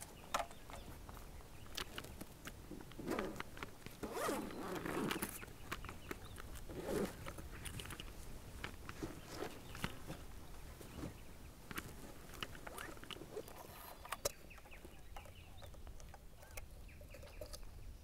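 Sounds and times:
bag zipper pulled open: 2.9 - 5.4, 6.6 - 7.4.

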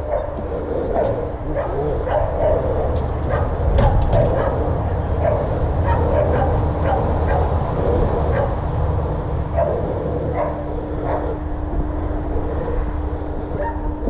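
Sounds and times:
dog yipping: 0.0 - 7.5, 13.6 - 13.9
faint steady hum: 0.0 - 14.0
low rumble: 0.0 - 14.0.

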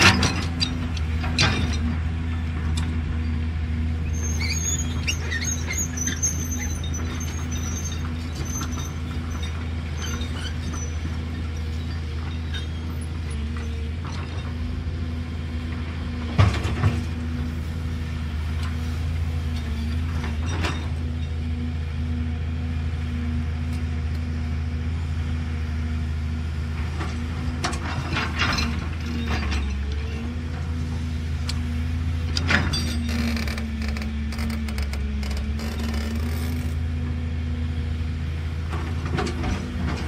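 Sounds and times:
excavator diesel engine running: 0.0 - 40.0
brief high squeaks: 4.1 - 8.9.

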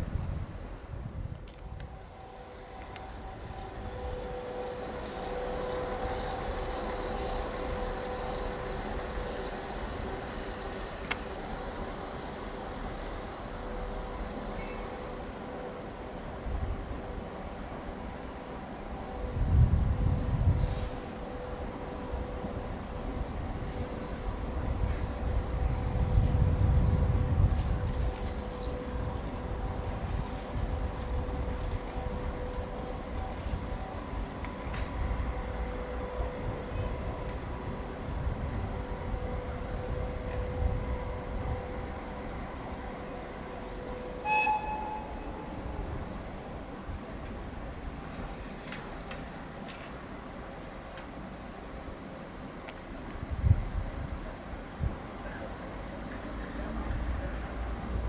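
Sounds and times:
locomotive engines droning: 0.0 - 58.0
steady hum: 3.0 - 15.6.

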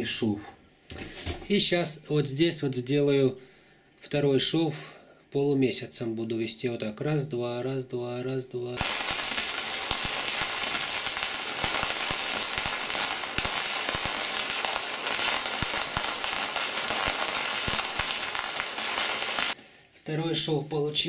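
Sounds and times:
welding arc crackling hiss: 8.8 - 19.6
welding arc pops: 8.8 - 19.6.

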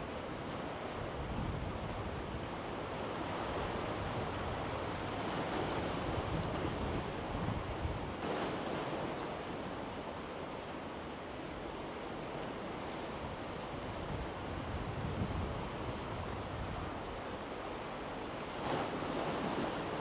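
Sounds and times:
sea surf rushing: 18.1 - 20.0.

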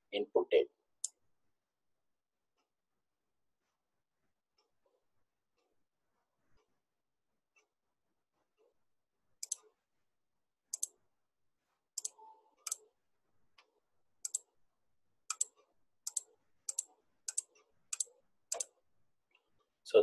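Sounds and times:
computer mouse clicks: 9.4 - 9.7, 10.7 - 11.0, 12.0 - 12.8, 13.6 - 14.5, 15.3 - 18.8.

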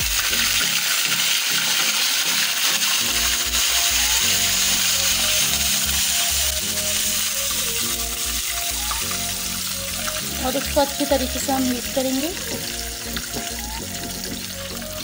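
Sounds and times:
background music: 0.0 - 15.0
spices sizzling in hot oil: 0.0 - 15.0.

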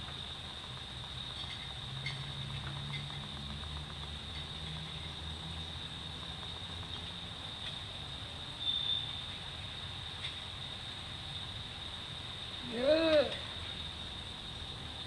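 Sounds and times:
high insect drone: 0.0 - 15.0
insect chirp: 0.0 - 15.0.

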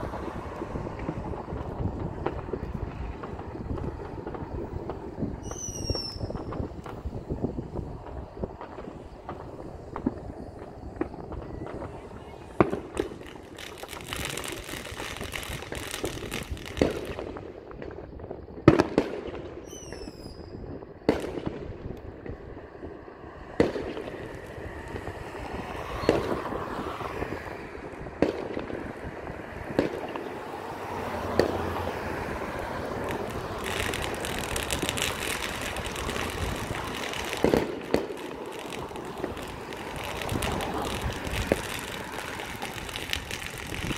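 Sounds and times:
firework bangs and booms: 0.0 - 43.9
distant crackling and popping: 27.8 - 43.9.

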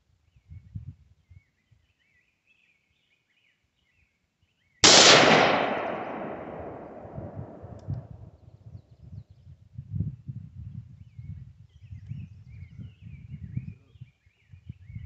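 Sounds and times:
rifle shot echoing: 4.8 - 8.0.

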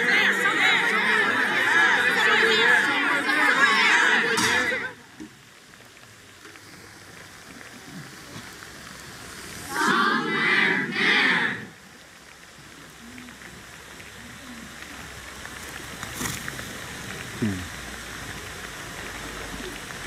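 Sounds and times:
voices in unison: 0.0 - 5.0, 9.6 - 11.8.

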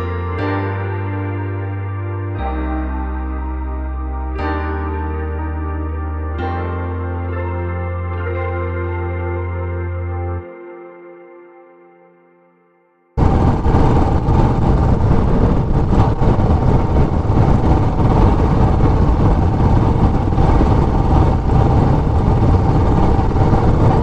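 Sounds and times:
vehicle engine and road noise: 13.2 - 24.0.

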